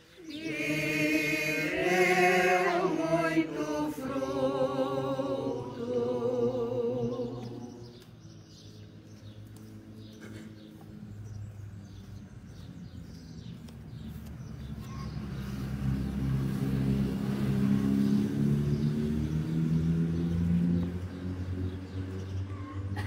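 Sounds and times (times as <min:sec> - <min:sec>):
vehicle engine passing by: 0:00.3 - 0:08.3, 0:13.9 - 0:23.0.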